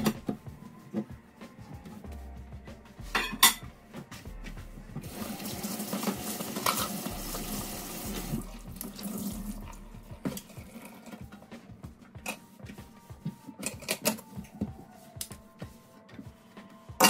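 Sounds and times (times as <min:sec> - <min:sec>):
water splashing on basin: 0:05.0 - 0:09.8.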